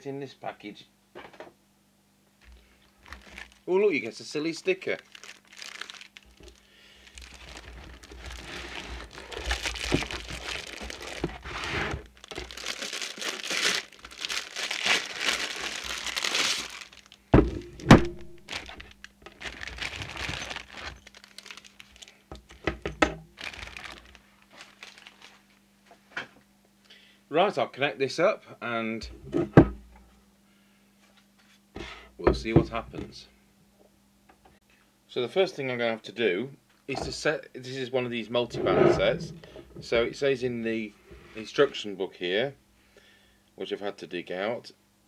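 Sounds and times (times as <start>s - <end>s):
plastic bag crinkling: 2.5s - 22.7s, 23.3s - 25.6s.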